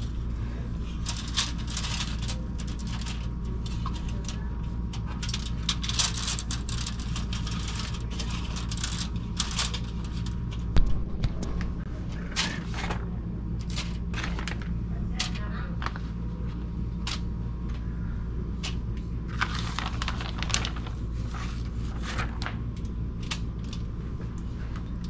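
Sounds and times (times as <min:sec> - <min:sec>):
aluminium foil crinkling: 0:00.0 - 0:10.8, 0:13.6 - 0:16.0, 0:18.6 - 0:23.9
steady low hum: 0:00.0 - 0:25.0.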